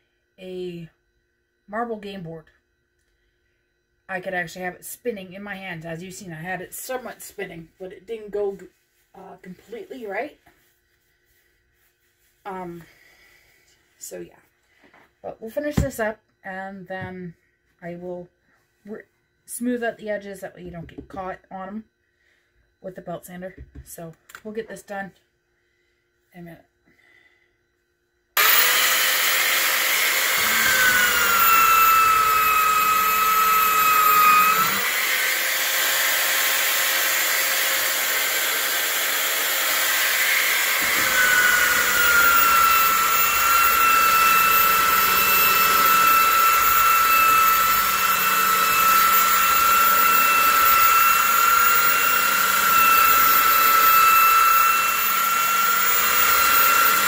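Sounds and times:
belt sander motor whine: 28.4s - 57.0s
sanding belt hissing on wood: 28.4s - 57.0s.

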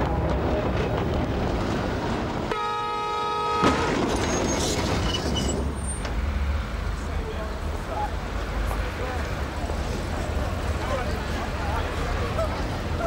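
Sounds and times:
low rumble of tram: 0.0s - 13.0s
tram horn blaring: 2.5s - 4.1s
brief high squeaks: 4.2s - 6.1s.

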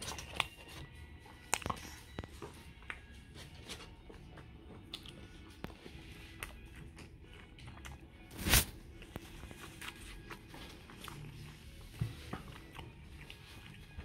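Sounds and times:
person chewing: 0.0s - 3.2s, 4.5s - 14.0s.

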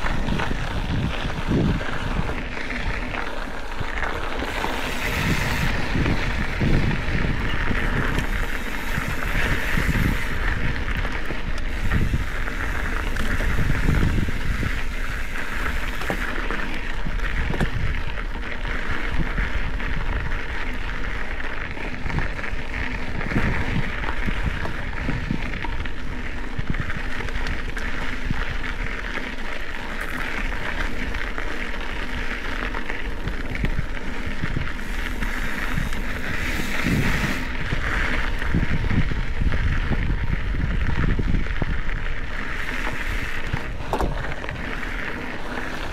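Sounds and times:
bike knocks and rattles: 0.0s - 45.9s
tyres hissing on dirt and gravel: 0.0s - 45.9s
wind buffeting microphone: 0.0s - 45.9s.

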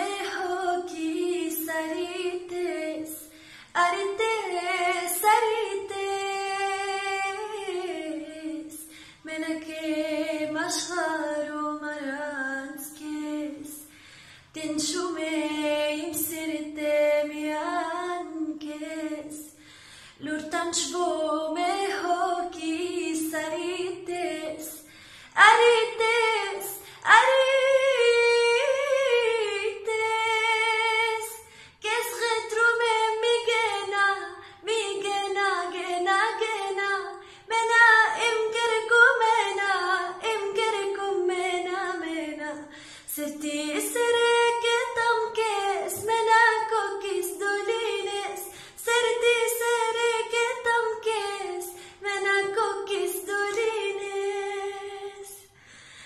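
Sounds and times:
woman singing unaccompanied: 0.0s - 13.8s, 14.6s - 19.5s, 20.2s - 55.5s.

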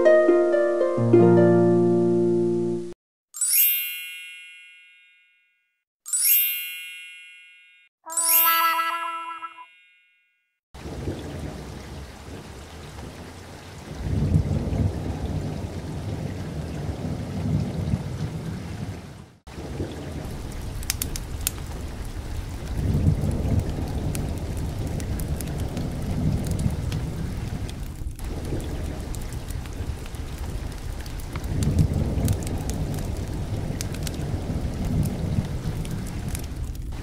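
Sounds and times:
crackling raindrops: 10.8s - 37.0s
rain hiss: 10.8s - 37.0s
rolling thunder: 10.8s - 37.0s.

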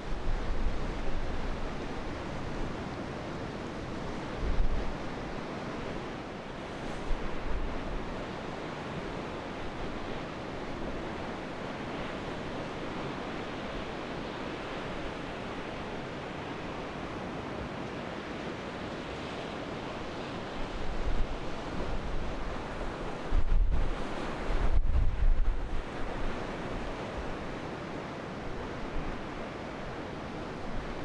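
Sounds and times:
wind buffeting microphone: 20.7s - 27.3s.

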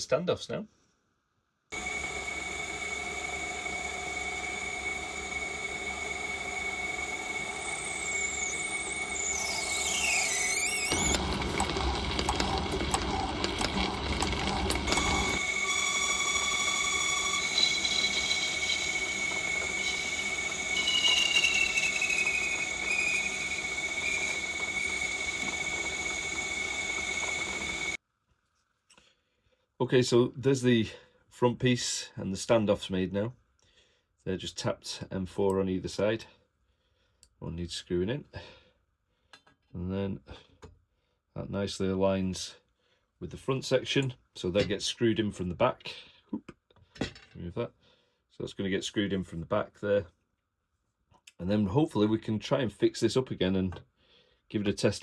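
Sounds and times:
drill squealing: 1.8s - 28.0s
lathe whining: 1.8s - 28.0s
rough cutting noise: 1.8s - 28.0s.

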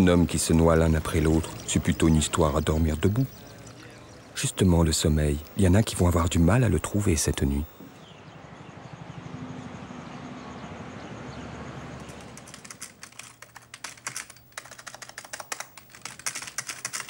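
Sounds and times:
keyboard typing: 0.0s - 3.9s, 12.0s - 17.0s
background hiss: 0.0s - 8.1s.

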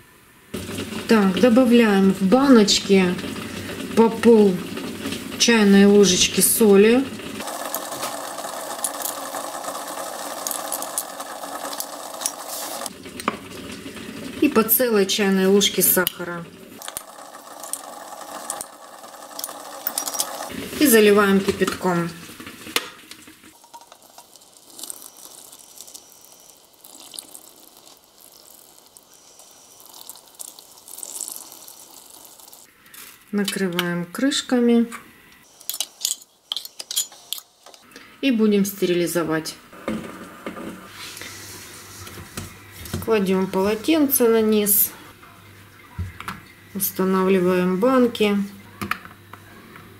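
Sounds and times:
steady mechanical whirr: 0.6s - 21.0s
water pouring into glass jars: 0.6s - 22.0s, 23.2s - 33.1s
salt spilling: 23.5s - 33.3s.

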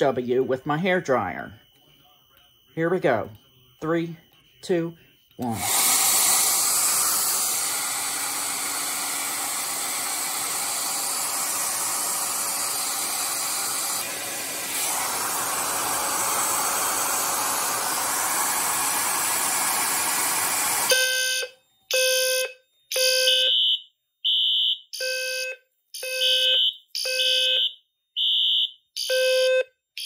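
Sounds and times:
fire alarm beeping: 0.0s - 5.4s, 20.9s - 30.0s
hair dryer blowing: 5.4s - 20.9s.

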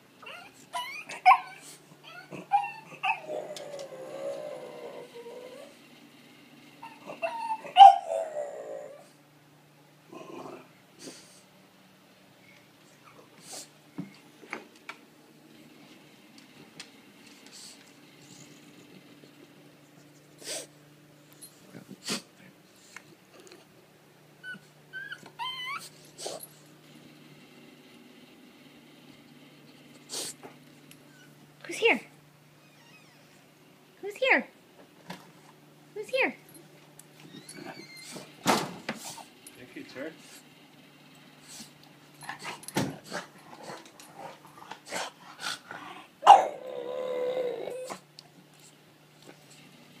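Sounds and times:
puppy whining: 0.2s - 5.8s, 6.8s - 9.2s, 24.4s - 26.6s, 31.0s - 31.9s, 32.6s - 33.5s, 37.2s - 38.3s, 45.8s - 48.1s
puppy barking sharply: 46.2s - 46.6s.

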